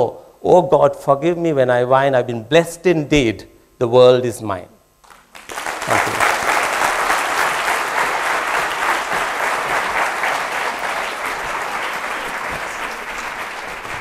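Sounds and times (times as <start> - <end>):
audience applauding: 5.0 - 14.0.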